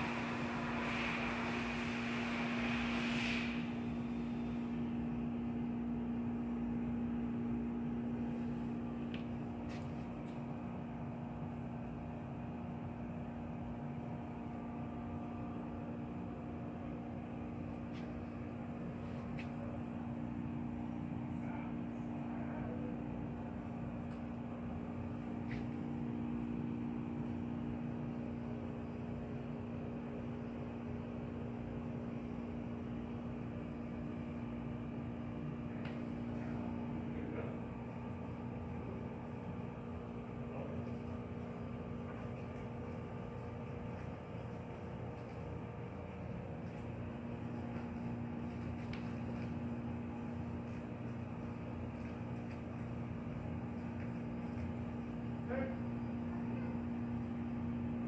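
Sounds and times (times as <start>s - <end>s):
low mechanical hum: 0.0s - 58.0s.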